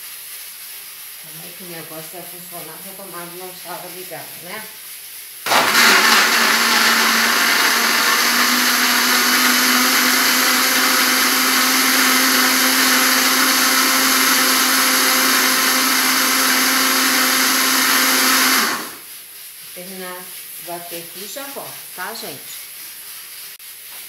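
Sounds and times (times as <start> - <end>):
blender motor running: 5.5 - 19.0.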